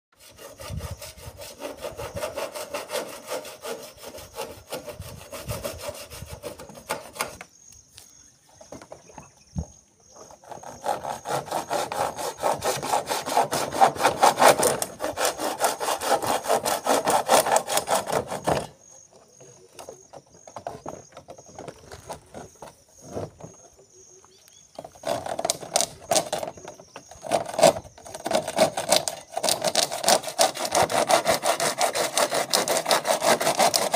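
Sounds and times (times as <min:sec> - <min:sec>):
hacksaw cutting metal gutter: 0:00.2 - 0:07.4, 0:10.4 - 0:18.8, 0:24.8 - 0:33.9.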